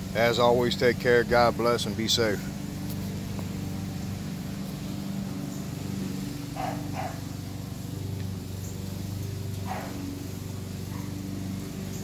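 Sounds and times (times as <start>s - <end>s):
steady low hum: 0.0s - 12.0s
puppy yipping: 6.6s - 7.2s, 9.7s - 10.0s.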